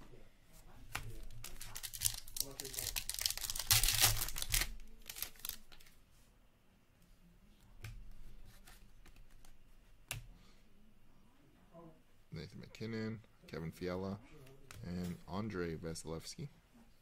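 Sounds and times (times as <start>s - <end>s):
foil wrapper tearing and crinkling: 1.3s - 5.9s.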